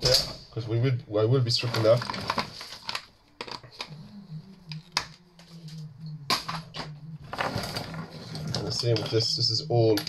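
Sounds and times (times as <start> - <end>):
faint low hum: 0.0 - 10.0
cables and plugs clicking and knocking: 1.5 - 4.0, 4.6 - 10.0.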